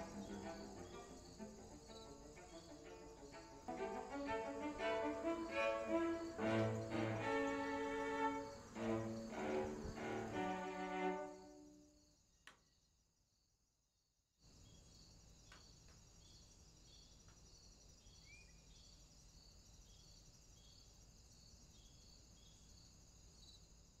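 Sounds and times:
violin note: 0.0 - 11.6
low hiss: 0.0 - 12.1
crickets chirping: 0.0 - 13.5, 14.4 - 24.0.

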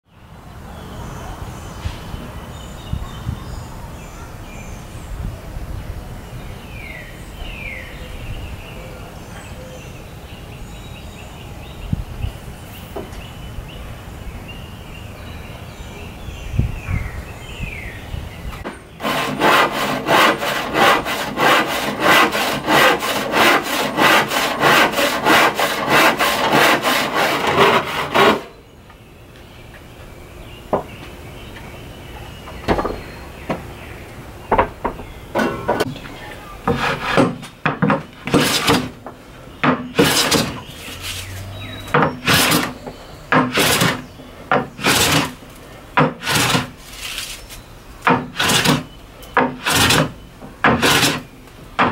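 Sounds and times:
hand saw cutting wood: 18.6 - 28.6, 36.6 - 39.0, 39.6 - 45.4, 46.0 - 47.3, 48.0 - 51.9.

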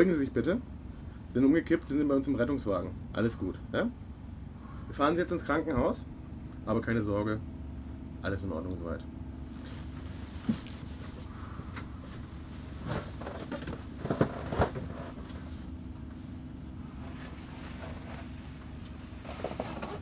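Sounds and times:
engine and road rumble: 0.0 - 20.0
knocks and rattles: 12.8 - 15.3.

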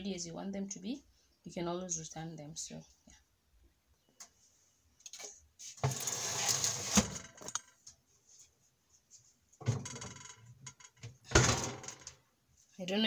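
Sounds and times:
oven tray scraping and rattling: 5.8 - 7.6.

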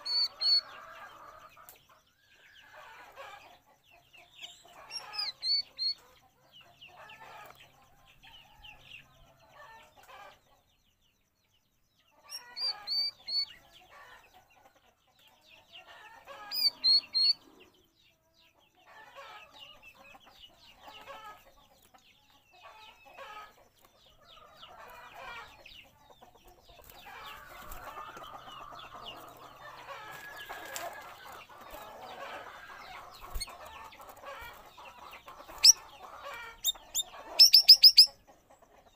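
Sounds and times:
bird singing chattering phrases: 0.0 - 0.7, 4.0 - 6.0, 12.2 - 13.6, 16.3 - 17.8, 31.1 - 38.6
wings fluttering: 26.8 - 28.2, 30.0 - 32.0, 32.8 - 34.6.

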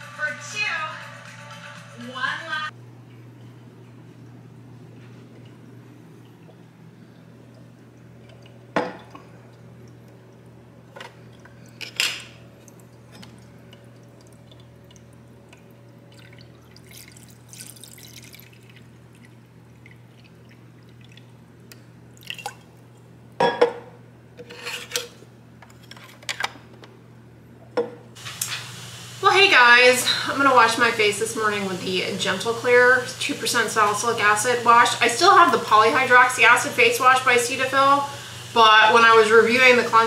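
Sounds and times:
steady low hum: 0.0 - 28.2
water trickling: 3.0 - 22.9
glass clinking on tabletop: 23.4 - 23.9.

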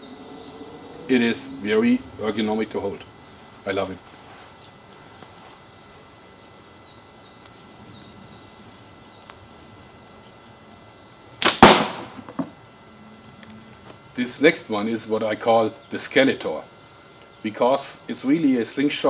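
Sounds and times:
bird singing short falling notes: 0.0 - 2.0.

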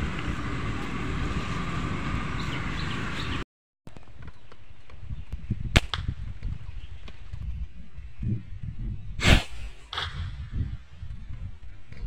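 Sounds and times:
wind buffeting microphone: 4.0 - 12.0.

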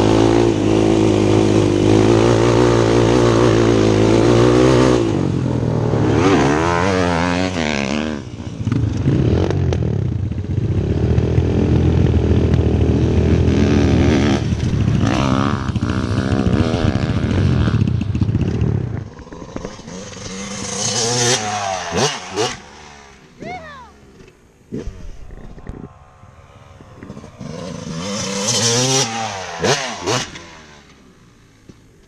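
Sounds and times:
motorbike engine revving: 0.0 - 31.4
dirt bike engine approaching: 0.0 - 32.0.

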